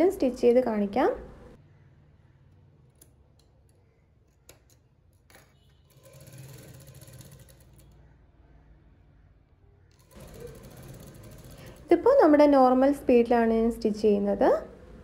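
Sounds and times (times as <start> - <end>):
sewing machine rattling: 5.4 - 8.1, 9.9 - 12.3.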